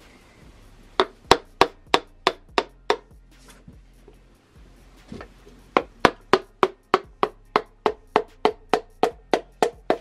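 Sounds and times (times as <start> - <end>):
hammer handle tapping on piston: 1.0 - 3.1, 5.8 - 10.0.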